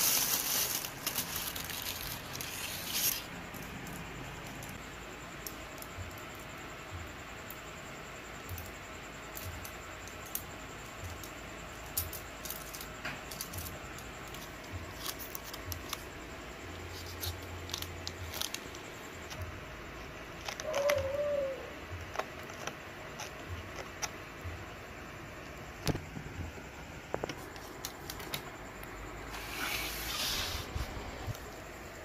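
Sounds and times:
plastic crinkling and clicks: 0:11.1 - 0:16.1, 0:16.9 - 0:19.4, 0:27.2 - 0:28.5.

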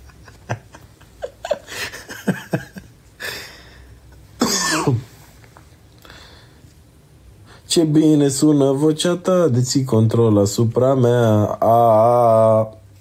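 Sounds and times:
man laughing: 0:00.0 - 0:05.0
man coughing: 0:04.4 - 0:05.2.

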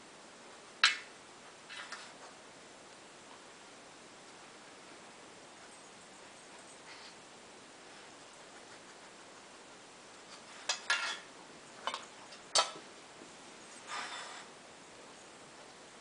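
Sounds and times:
metal muffin tin clinking: 0:10.3 - 0:12.8.

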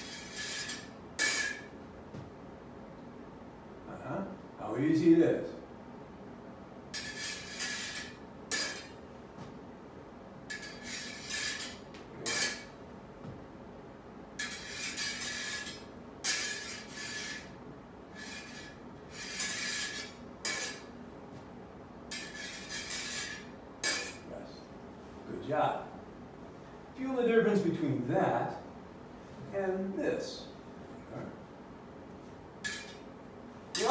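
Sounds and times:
sword blades scraping and clinking: 0:00.0 - 0:01.7, 0:07.0 - 0:09.0, 0:10.5 - 0:12.7, 0:14.4 - 0:17.6, 0:18.2 - 0:20.9, 0:22.1 - 0:24.2, 0:32.6 - 0:33.0.

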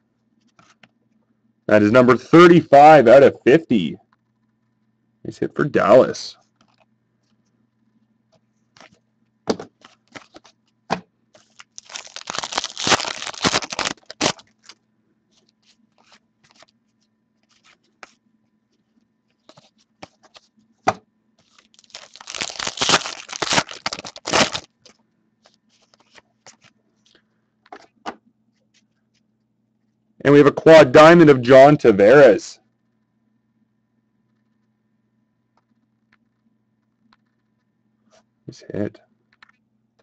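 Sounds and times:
foil wrappers tearing and crinkling: 0:09.8 - 0:10.6, 0:11.4 - 0:14.8, 0:21.4 - 0:26.7
cards clicking and sliding: 0:22.4 - 0:26.7.

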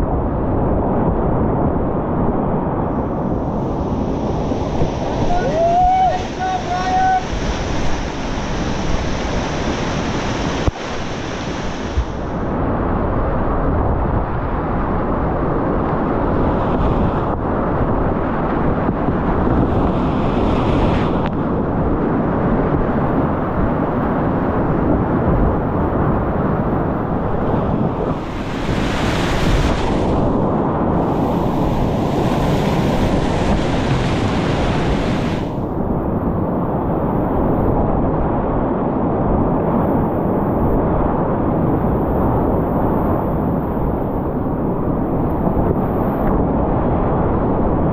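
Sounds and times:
wind buffeting microphone: 0:00.0 - 0:47.9
whitewater rapids rushing: 0:04.0 - 0:12.2.

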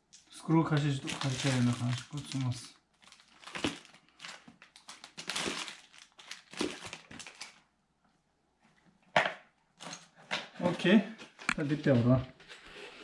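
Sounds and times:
packaging rustling and crinkling: 0:00.6 - 0:07.7.

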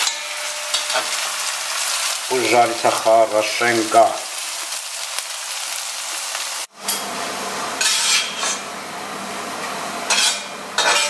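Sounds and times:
metal spatula scraping pan: 0:00.0 - 0:01.5, 0:07.8 - 0:08.6, 0:10.1 - 0:11.0
potatoes sizzling in oil: 0:00.0 - 0:11.0.

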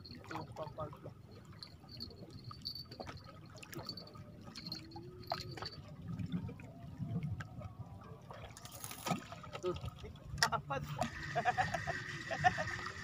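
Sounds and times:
sea water lapping against rocks: 0:00.4 - 0:13.0
small splashes and drips: 0:01.5 - 0:11.2.

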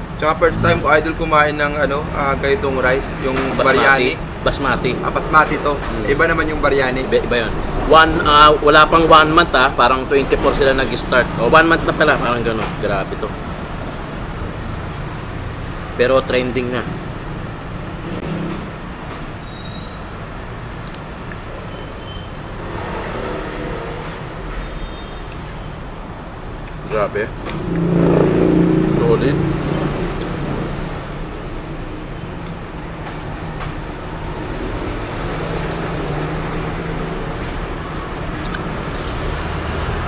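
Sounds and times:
vehicle engine hum: 0:00.0 - 0:07.8
road traffic rumble: 0:00.0 - 0:40.0
faint high squeaks: 0:19.0 - 0:20.4.

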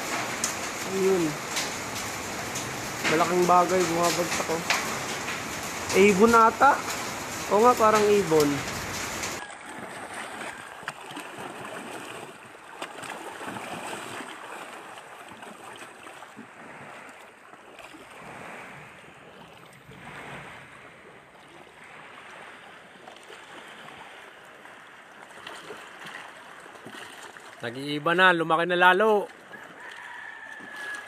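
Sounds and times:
water lapping against boat: 0:00.0 - 0:31.0.

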